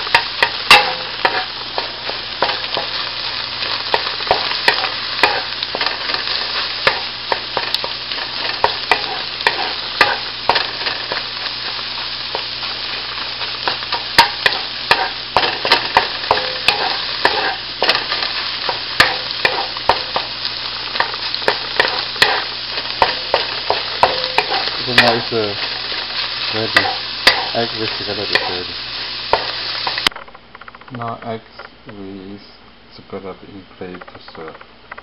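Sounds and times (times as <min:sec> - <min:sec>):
food sizzling in a frying pan: 0:00.0 - 0:30.1
wooden spatula scraping a pan: 0:00.1 - 0:20.3.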